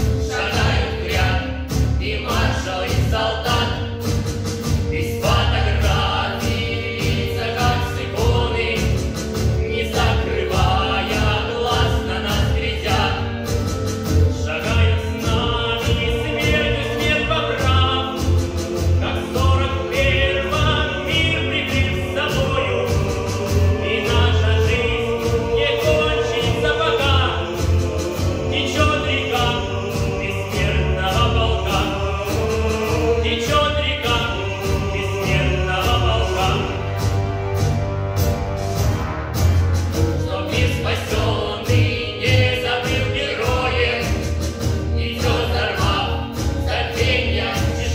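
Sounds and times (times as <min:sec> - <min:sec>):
children's choir singing: 0:00.0 - 0:04.2, 0:04.8 - 0:13.5, 0:14.4 - 0:37.2, 0:40.0 - 0:47.9
bass beat: 0:00.0 - 0:47.9
recorded backing track: 0:00.0 - 0:47.9.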